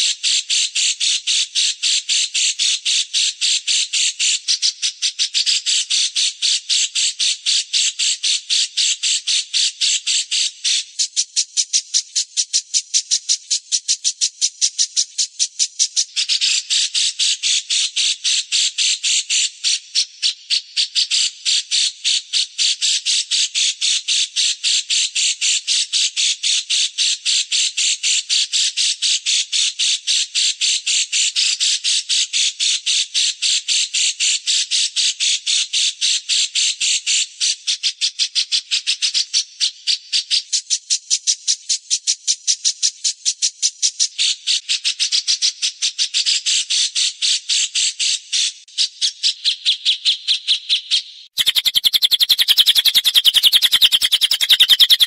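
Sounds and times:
songbird chirping: 0:49.3 - 0:55.0.

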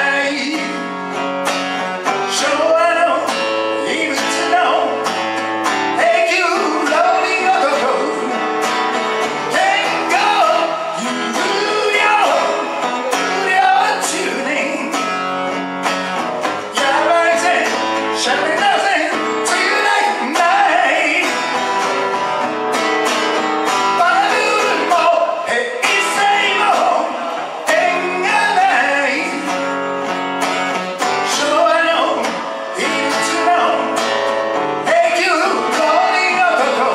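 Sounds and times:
man singing a ballad: 0:00.0 - 0:01.0, 0:02.2 - 0:05.2, 0:05.9 - 0:08.5, 0:09.5 - 0:15.3, 0:16.7 - 0:21.6, 0:23.9 - 0:29.8, 0:31.1 - 0:36.9
acoustic guitar strumming: 0:00.0 - 0:36.9.

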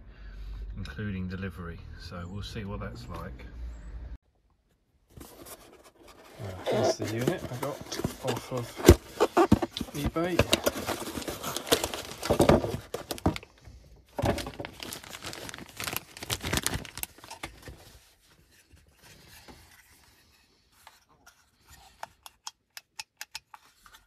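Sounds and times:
plastic and cardboard crinkling: 0:05.1 - 0:22.0.

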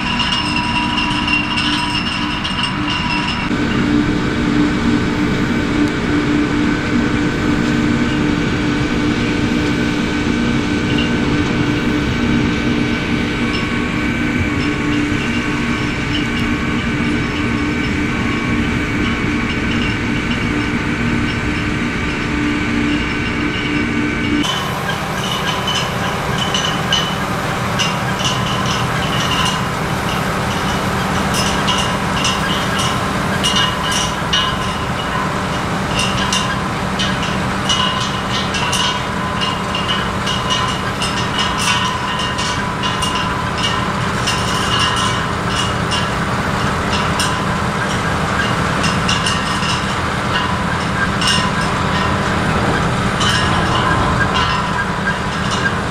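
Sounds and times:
machinery running: 0:00.0 - 0:55.9
potatoes clattering on conveyors: 0:24.4 - 0:55.9.

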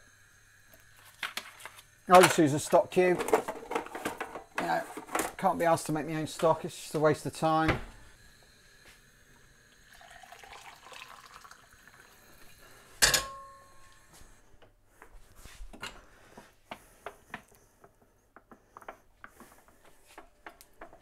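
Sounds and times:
kettle set down clunk: 0:02.2 - 0:02.5
water pouring into a jug: 0:09.4 - 0:12.9.

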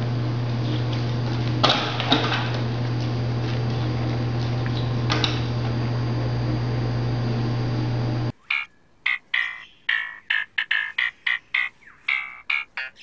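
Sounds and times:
low mechanical hum: 0:00.0 - 0:08.3.

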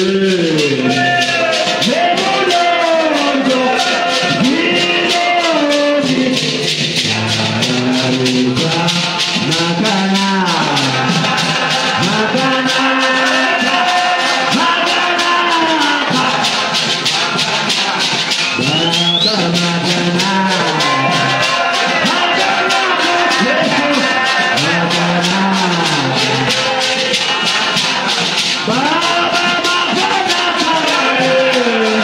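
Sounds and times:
gourd shaker beat: 0:00.0 - 0:32.0
man singing through microphone: 0:00.0 - 0:32.0.

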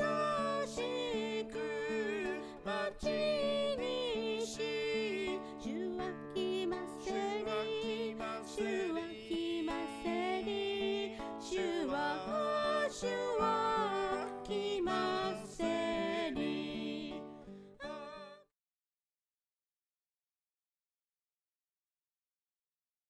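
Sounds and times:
background music with melody: 0:00.0 - 0:18.4.

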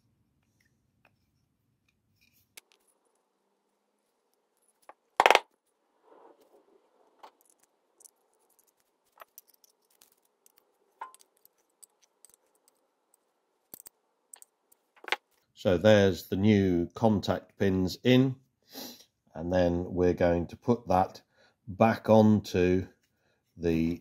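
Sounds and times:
small metal parts clinking: 0:07.3 - 0:15.4.

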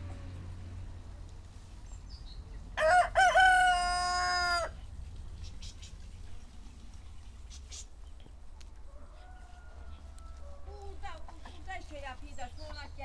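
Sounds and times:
rooster crowing: 0:02.8 - 0:04.8, 0:08.8 - 0:10.7.

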